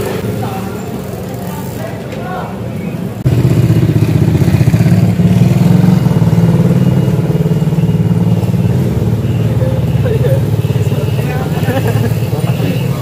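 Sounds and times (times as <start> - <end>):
engine running with fast throb: 3.2 - 13.0.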